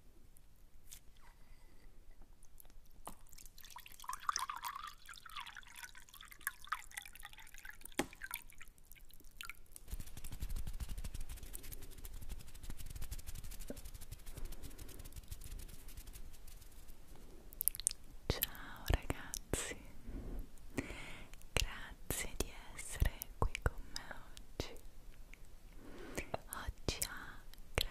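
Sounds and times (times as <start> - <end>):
rapid crackles: 9.9 - 17.0.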